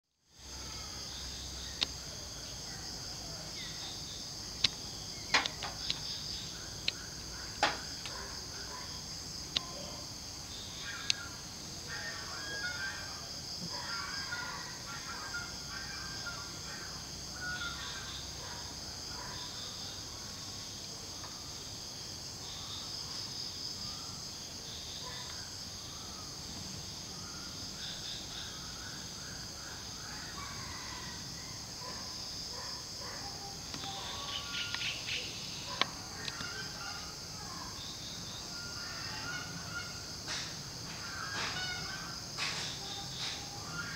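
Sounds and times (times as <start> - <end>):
high-pitched insect chorus: 0.3 - 43.9.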